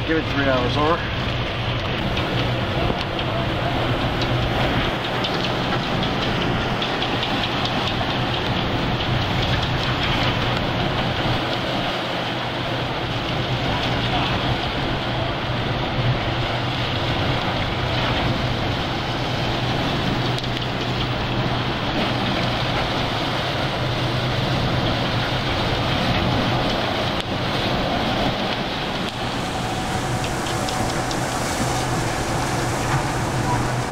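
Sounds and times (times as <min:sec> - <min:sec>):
boat engine drone: 0:00.0 - 0:33.9
rough sea: 0:00.0 - 0:33.9
wind rushing: 0:23.8 - 0:33.9.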